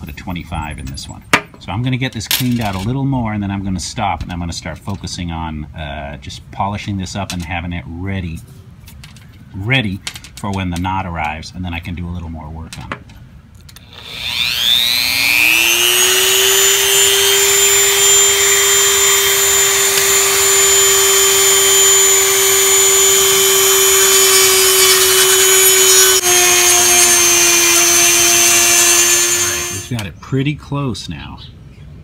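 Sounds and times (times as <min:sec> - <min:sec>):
rotary tool grinding plastic: 0:13.8 - 0:30.0.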